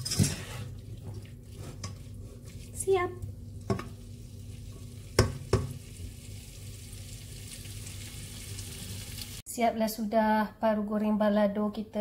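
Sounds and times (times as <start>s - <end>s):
food sizzling in a pot: 1.5s - 9.4s.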